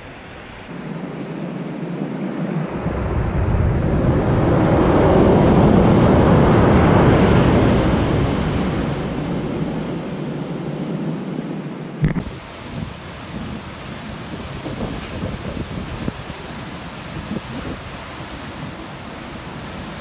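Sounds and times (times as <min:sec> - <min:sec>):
wave washing on sandy beach: 0:00.0 - 0:20.0.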